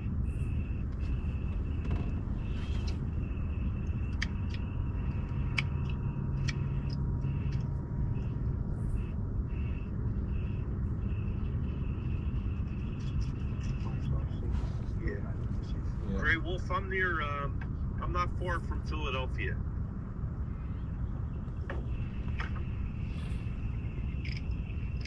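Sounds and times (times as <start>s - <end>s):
low rumble: 0.0s - 25.0s
night insects trilling: 0.0s - 25.0s
faint ticks: 3.7s - 8.3s.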